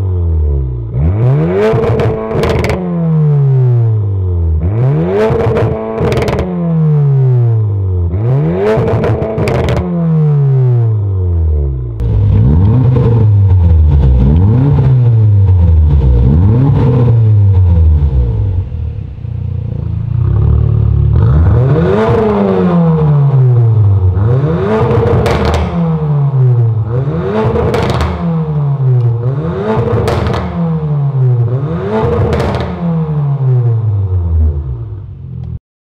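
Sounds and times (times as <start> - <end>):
car engine revving: 0.0 - 35.6.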